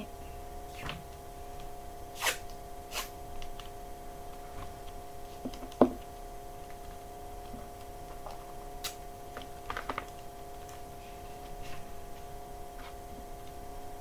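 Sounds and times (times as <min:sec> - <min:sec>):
electrical hum: 0:00.0 - 0:14.0
masking tape tearing: 0:02.2 - 0:03.2.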